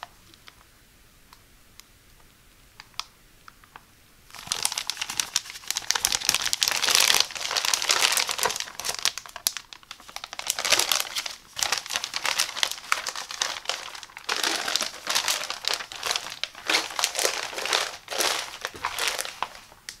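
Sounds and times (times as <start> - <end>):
plastic curtain crinkling: 4.3 - 20.0.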